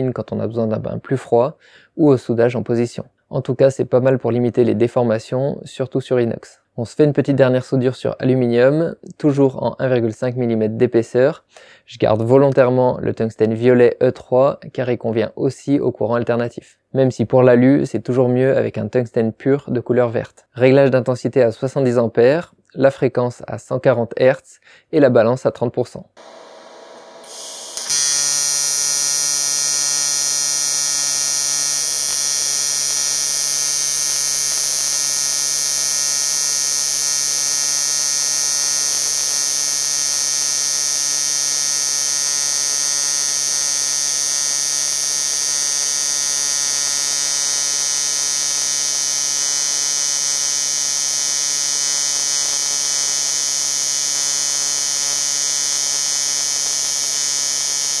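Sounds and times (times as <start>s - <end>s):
welding arc buzzing: 26.2s - 58.0s.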